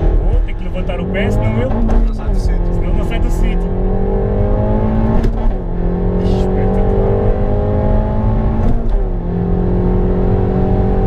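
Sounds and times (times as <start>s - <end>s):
gear shift crack: 0.0s - 7.6s, 8.4s - 9.1s
car engine accelerating hard: 0.0s - 11.0s.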